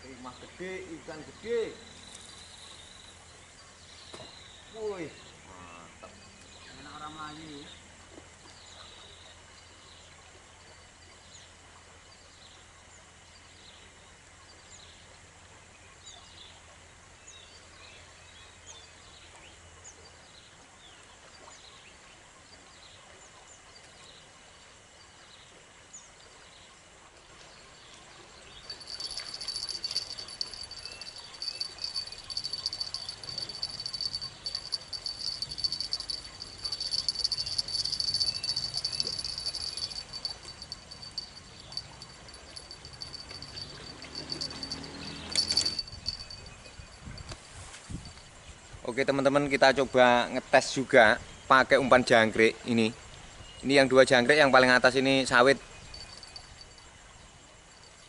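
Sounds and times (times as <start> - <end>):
faint high chirps: 28.5 - 47.3, 55.1 - 58.0
insect trilling: 28.7 - 47.1, 55.0 - 56.9.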